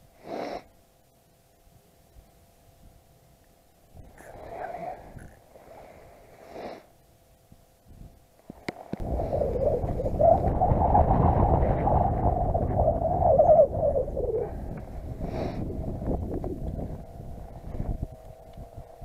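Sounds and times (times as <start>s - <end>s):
wind buffeting microphone: 9.0s - 19.0s.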